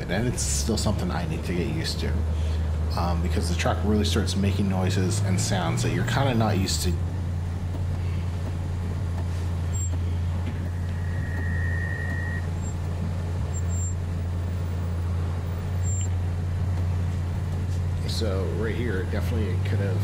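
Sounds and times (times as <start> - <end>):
car cabin low drone: 0.0 - 20.0
steady high tone: 10.7 - 12.9.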